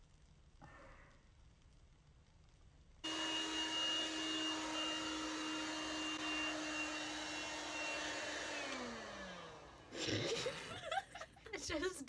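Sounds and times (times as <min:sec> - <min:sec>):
hair dryer whining: 0:03.0 - 0:11.0.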